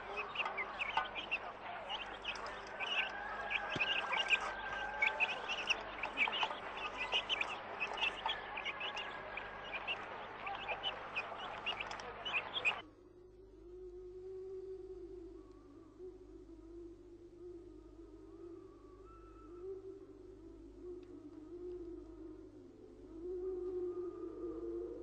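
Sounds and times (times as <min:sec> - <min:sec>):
birds chirping chorus: 0:00.0 - 0:12.8.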